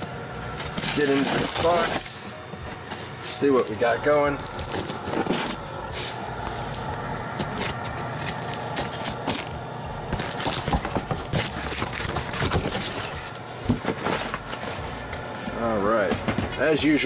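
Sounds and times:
packing tape crackling: 0.0 - 15.2
cardboard flaps scraping: 0.4 - 3.5, 4.4 - 15.2.

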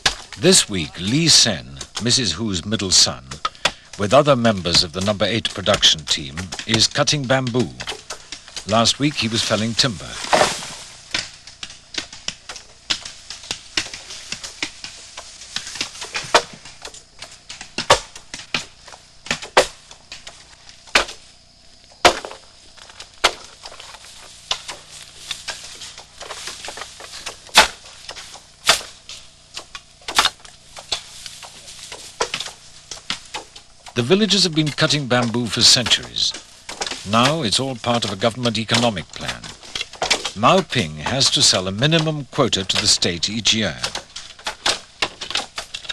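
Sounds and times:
bamboo being chopped: 0.0 - 45.9.

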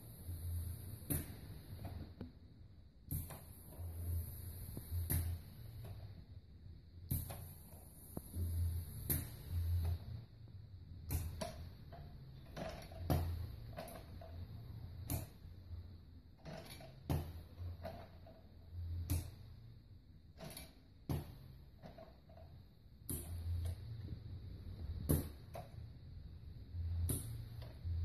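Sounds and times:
short air bursts from valves: 3.1 - 6.0, 7.1 - 10.1
thumps and creaks of moving parts: 11.1 - 15.4, 16.4 - 19.4, 20.3 - 24.0.

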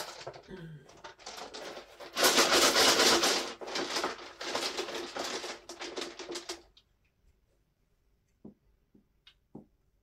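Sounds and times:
dice rattling in a hat: 1.1 - 6.8.

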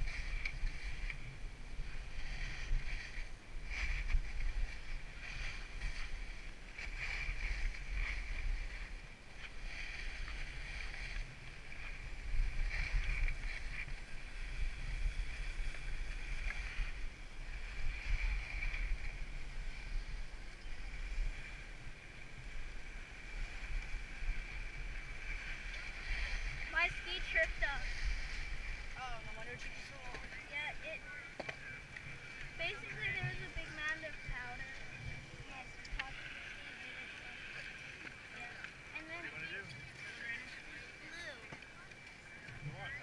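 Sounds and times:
skis scraping over packed snow: 0.0 - 37.4
wind buffeting microphone: 31.7 - 36.3.

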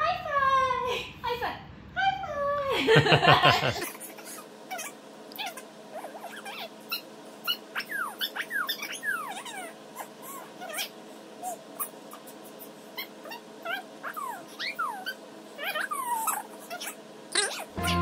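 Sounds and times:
cat squeaky whines: 4.7 - 17.7.

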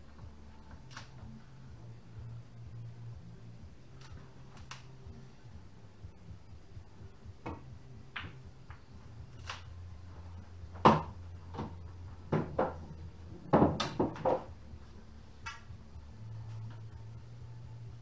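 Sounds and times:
low steady hum: 0.0 - 18.0
pool balls colliding: 7.4 - 9.6, 10.2 - 14.6
cue striking ball: 8.2 - 8.4, 10.7 - 12.9, 13.5 - 14.5.

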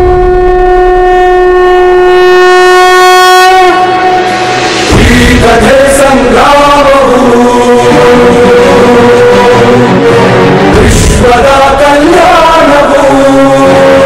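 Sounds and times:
conch shell blown: 0.0 - 5.0
devotional song: 0.0 - 14.0.

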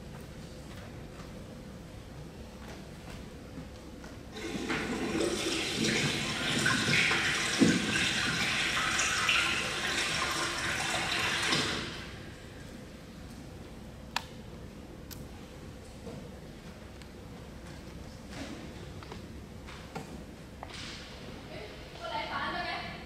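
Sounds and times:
toilet flushing water: 4.3 - 12.6.

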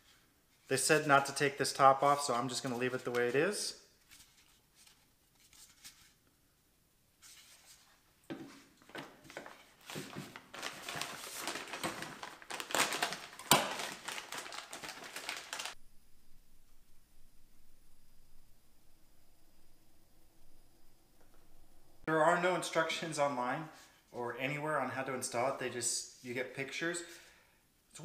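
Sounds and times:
plastic bag crinkling: 8.9 - 15.8.

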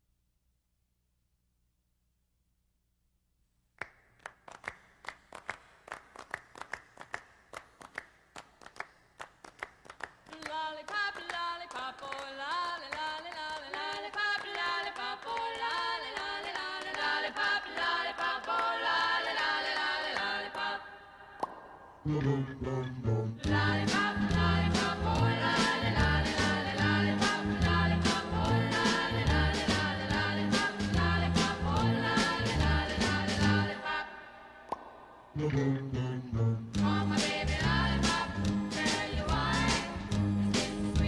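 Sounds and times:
clapping beat: 3.8 - 20.7
a cappella singing voices: 10.3 - 41.0.

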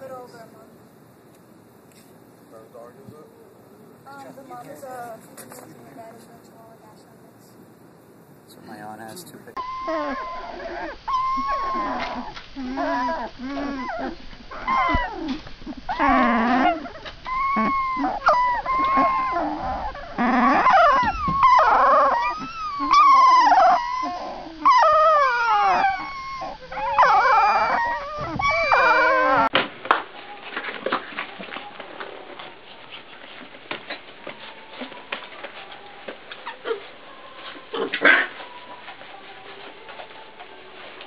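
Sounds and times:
puppies whining and squealing: 9.6 - 29.5, 30.2 - 41.0.

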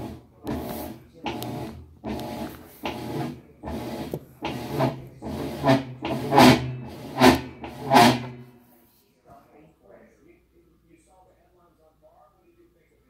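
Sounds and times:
washer motor hum: 0.0 - 8.5.

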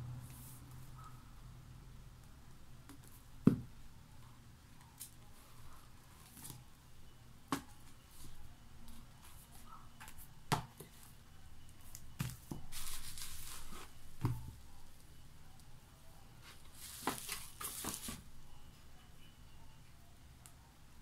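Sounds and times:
books knocking on tiled floor: 3.4 - 3.7, 14.2 - 14.6, 16.9 - 18.2.

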